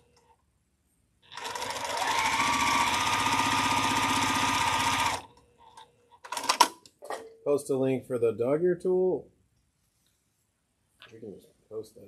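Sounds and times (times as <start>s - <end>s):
sewing machine stitching: 1.3s - 5.3s.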